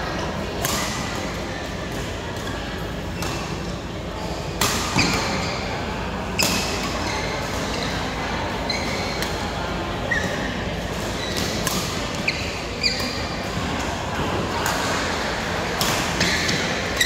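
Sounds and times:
large hall background noise: 0.0 - 17.0
racket hitting shuttlecock: 0.6 - 1.1, 11.0 - 12.2, 15.8 - 17.0
shoes squeaking on court floor: 3.1 - 9.3, 10.0 - 13.4.

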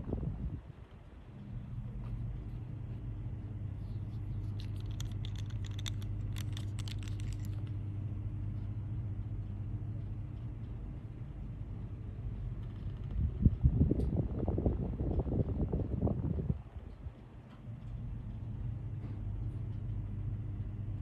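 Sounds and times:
steady low hum: 0.0 - 21.0
pen clicks and taps: 4.4 - 7.7.

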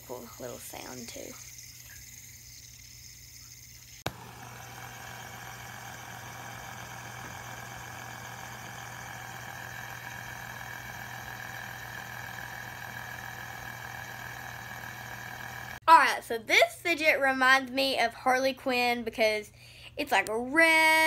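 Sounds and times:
fidget spinner jingly whir: 0.0 - 15.8.

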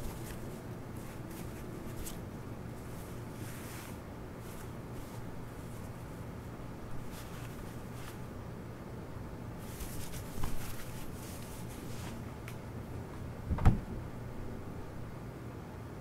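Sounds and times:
steady low hum: 0.0 - 16.0
dull thump: 13.5 - 14.0.

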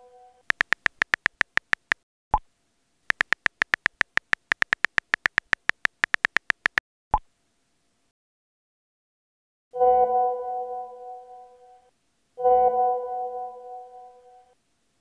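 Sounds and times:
phone keyboard clicks: 0.4 - 2.0, 3.1 - 6.8
message sent pop: 0.5 - 2.0.

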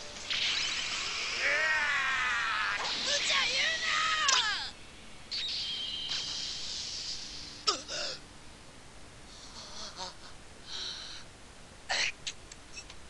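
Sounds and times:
hissing rush with high tone: 0.0 - 2.1, 5.4 - 7.8.

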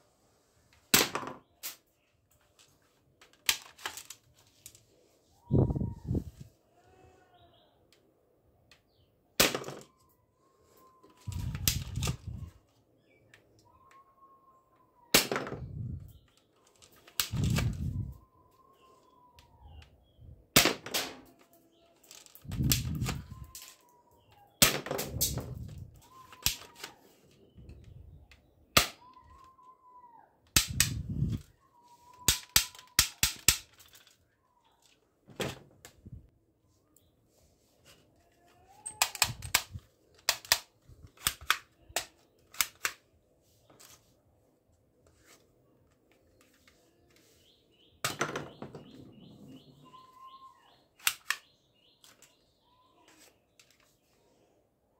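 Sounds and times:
toy guns clicking and snapping: 3.2 - 4.7, 11.2 - 12.4, 16.6 - 17.9, 24.6 - 27.0, 30.5 - 31.0, 32.1 - 34.2, 38.8 - 43.1, 51.0 - 52.3.

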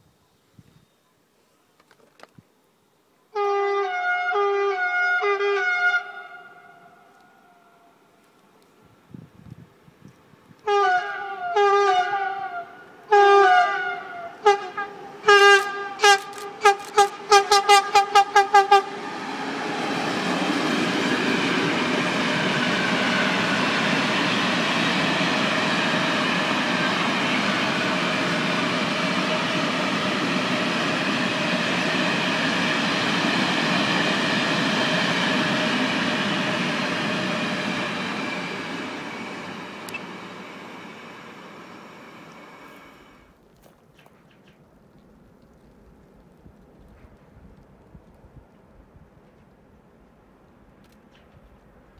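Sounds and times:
locomotive horn blasts: 3.3 - 6.9, 10.6 - 18.9
train wagons rolling past: 9.7 - 51.9.

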